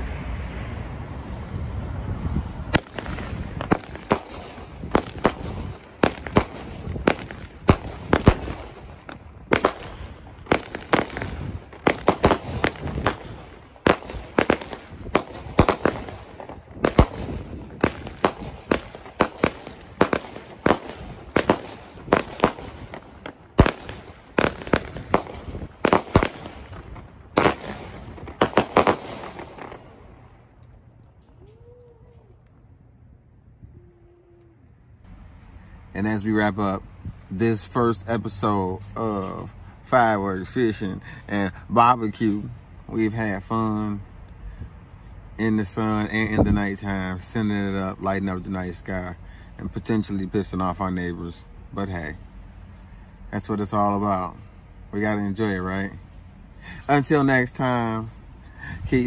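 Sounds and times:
firework sharp bangs: 0:02.7 - 0:30.4.

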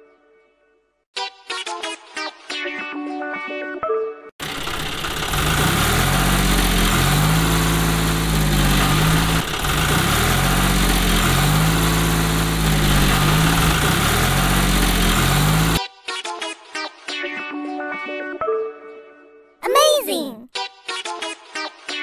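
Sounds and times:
tractor engine running: 0:04.4 - 0:15.8.

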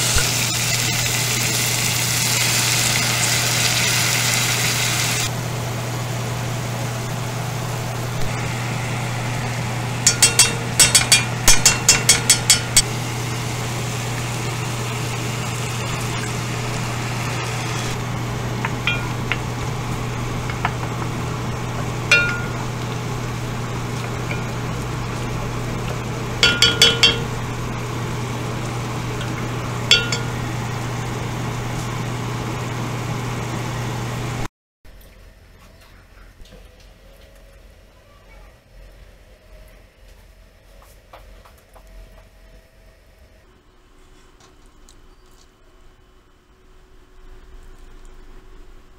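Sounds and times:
steady low hum: 0:07.8 - 0:33.5
spoon clinking against pot: 0:10.0 - 0:12.9, 0:18.8 - 0:19.4, 0:22.1 - 0:22.8, 0:26.4 - 0:27.4, 0:29.9 - 0:30.4.

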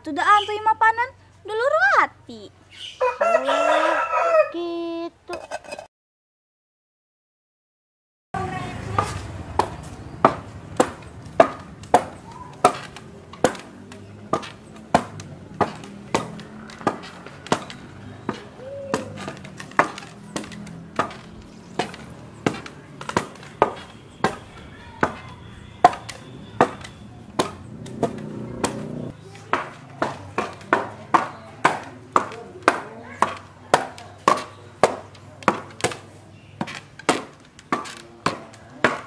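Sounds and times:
beat of sharp knocks: 0:08.9 - 0:39.0.

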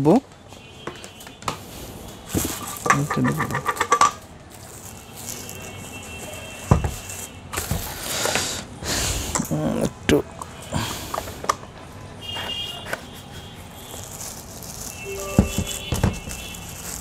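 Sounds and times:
plastic bag rustling: 0:13.9 - 0:17.0
person speaking: 0:15.1 - 0:16.2.

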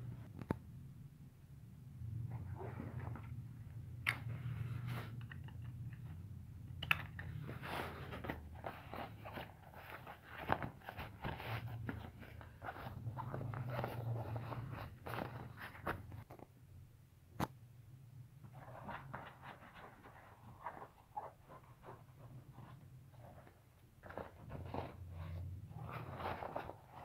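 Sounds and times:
stiff fabric rustling: 0:07.4 - 0:16.4, 0:18.4 - 0:27.0.

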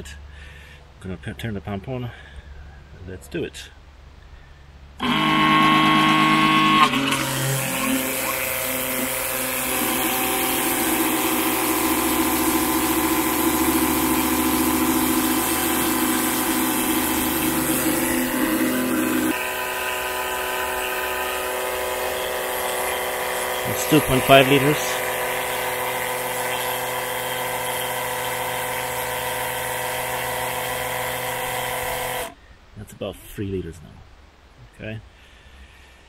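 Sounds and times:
electric pump whining: 0:05.0 - 0:32.4.

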